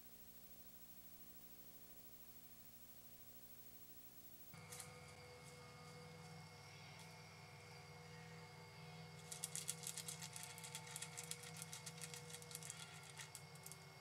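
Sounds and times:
insect trilling: 6.6s - 14.0s.

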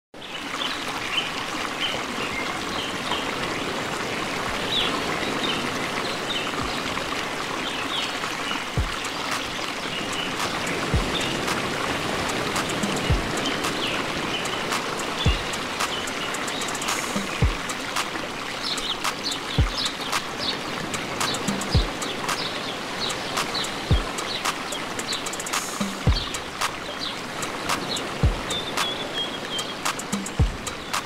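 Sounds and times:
rushing water-like wash: 0.2s - 31.0s
deep kick drum: 8.8s - 9.0s, 11.0s - 11.2s, 13.1s - 13.3s, 15.3s - 15.5s, 17.4s - 17.6s, 19.6s - 19.8s, 21.8s - 22.0s, 23.9s - 24.1s, 26.0s - 26.3s, 28.2s - 28.5s, 30.4s - 30.6s.

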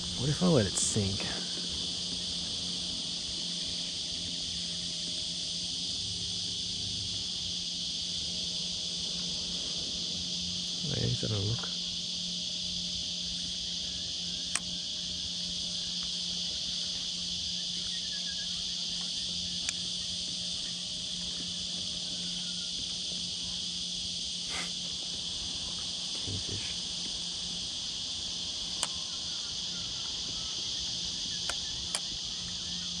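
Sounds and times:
insects chorus: 0.0s - 33.0s
faint sharp clicks: 31.4s - 32.1s.

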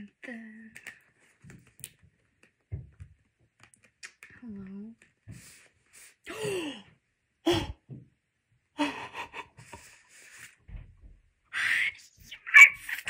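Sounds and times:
person gasping: 6.3s - 6.9s, 7.5s - 7.8s.

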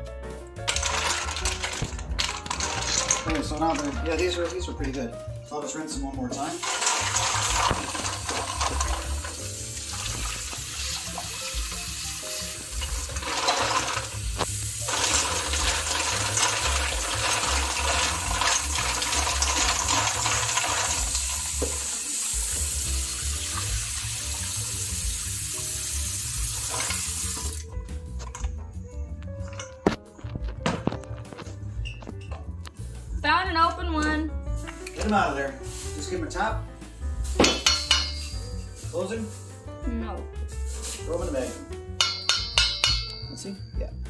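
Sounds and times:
tap running into metal bowl: 6.3s - 25.8s, 26.4s - 27.7s.

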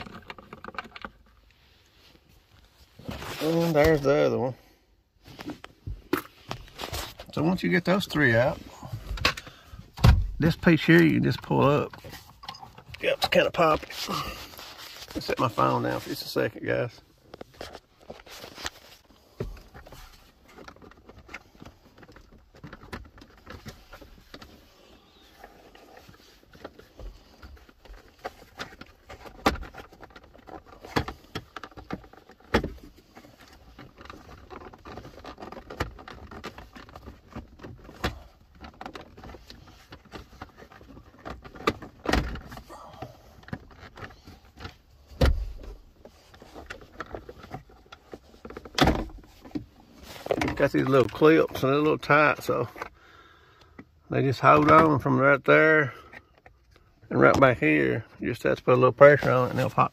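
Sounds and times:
handling noise: 5.2s - 53.0s.

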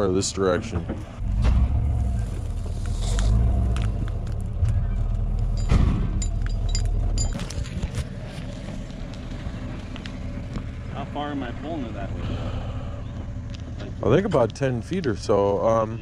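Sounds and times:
engine low rumble: 0.0s - 16.0s.

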